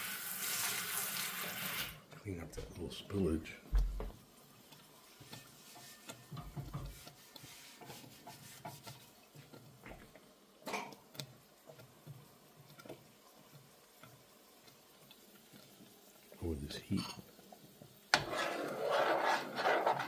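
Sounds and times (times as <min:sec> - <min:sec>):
sponge scrubbing griddle: 0:04.8 - 0:10.0, 0:18.1 - 0:20.0.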